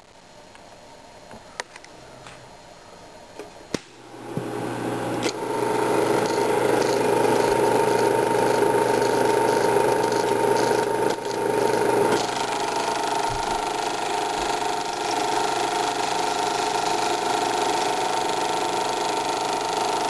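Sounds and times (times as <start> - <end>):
projector motor humming: 3.4 - 20.0.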